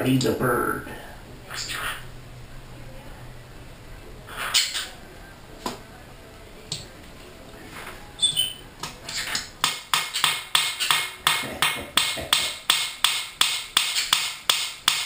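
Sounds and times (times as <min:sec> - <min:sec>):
parrot chirps: 0:01.5 - 0:02.1, 0:04.3 - 0:05.0, 0:08.2 - 0:09.5
parrot tapping: 0:08.4 - 0:15.0.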